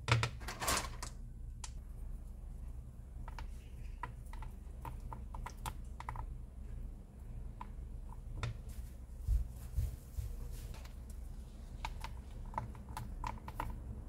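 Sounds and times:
steady low hum: 0:00.0 - 0:14.0
soft low thumps: 0:09.1 - 0:10.5.

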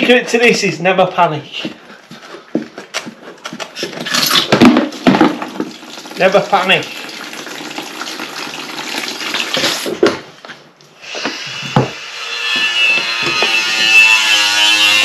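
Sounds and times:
water pouring into plastic bucket: 0:04.3 - 0:10.2.

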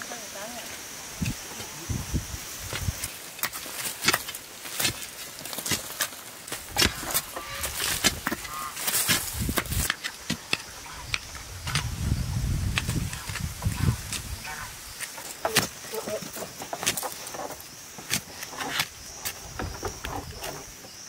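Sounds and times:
soil and pebbles rattling: 0:00.0 - 0:21.0
hoes chopping stony earth: 0:02.7 - 0:12.0, 0:12.6 - 0:14.4, 0:15.0 - 0:20.6.

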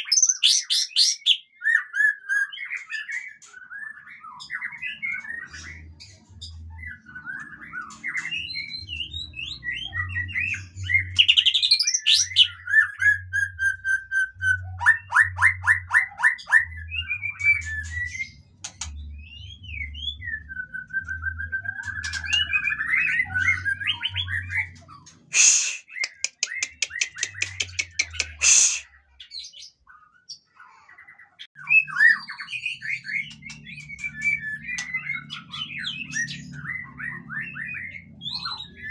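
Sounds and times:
bird singing whistles and trills: 0:00.0 - 0:30.5, 0:31.6 - 0:38.9
harsh fast clicks: 0:26.0 - 0:28.5.

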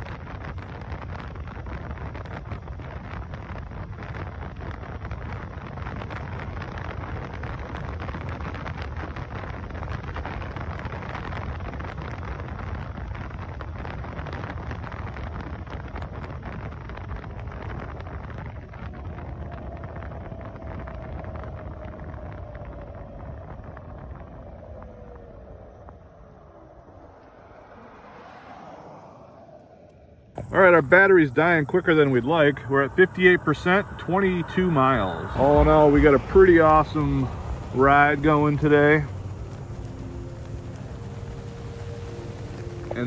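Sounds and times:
road noise: 0:00.0 - 0:43.0
wind rush: 0:00.0 - 0:43.0
electric motor whine: 0:30.4 - 0:43.0.

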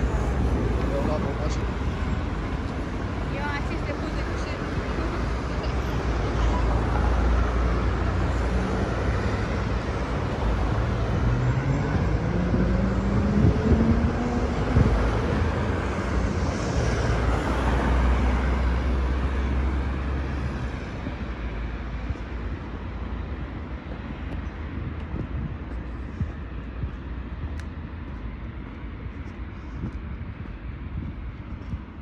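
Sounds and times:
traffic rumble: 0:00.0 - 0:32.0
vehicle engine accelerating: 0:06.5 - 0:20.7.

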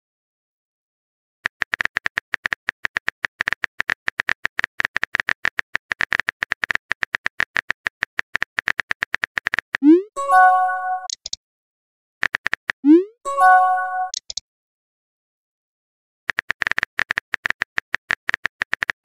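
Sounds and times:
keyboard typing clicks: 0:01.4 - 0:11.4, 0:12.2 - 0:14.4, 0:16.3 - 0:19.0.

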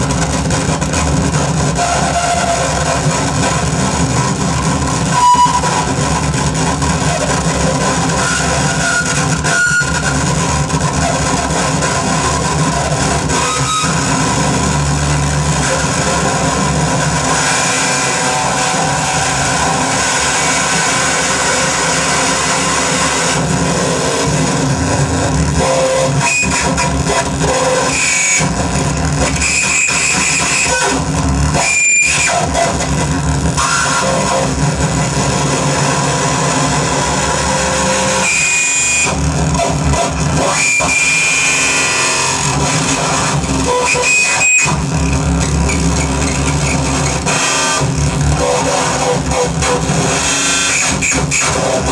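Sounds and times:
low drone: 0:00.0 - 0:29.2
distorted electronic noise: 0:00.0 - 0:51.9
guitar feedback squeals: 0:00.1 - 0:51.9.

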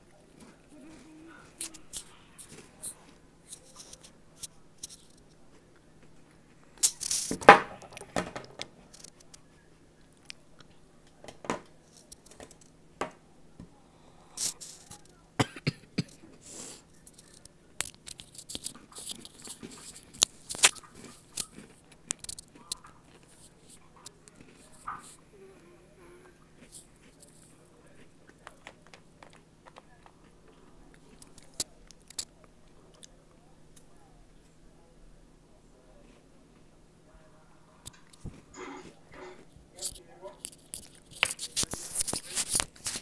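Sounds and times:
chewing with crisp crunches: 0:00.0 - 0:08.2, 0:08.8 - 0:12.8, 0:14.0 - 0:34.0, 0:37.8 - 0:43.0
cookie crunching: 0:00.0 - 0:13.2, 0:14.0 - 0:34.4, 0:37.8 - 0:43.0.

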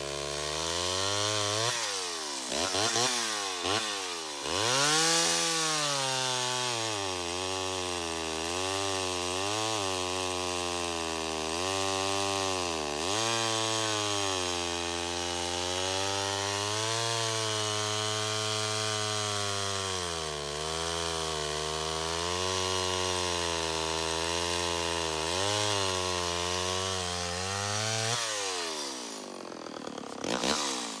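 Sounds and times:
chainsaw cutting log: 0:00.0 - 0:31.0.

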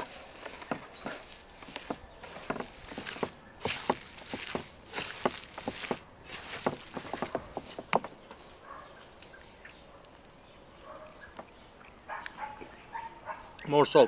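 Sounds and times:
hands kneading raw meat: 0:00.0 - 0:08.7.

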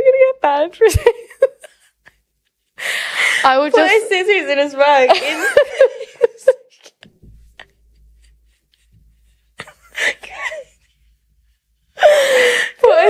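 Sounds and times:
women laughing: 0:00.9 - 0:02.2, 0:03.2 - 0:04.2, 0:05.0 - 0:07.0, 0:09.6 - 0:10.9.

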